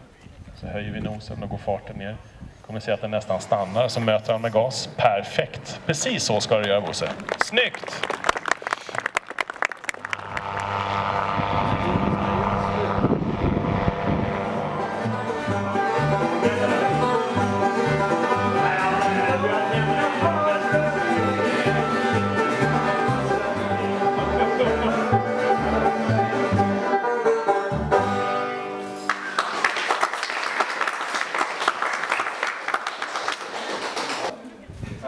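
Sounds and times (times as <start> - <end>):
acoustic string band playing: 12.2 - 29.2.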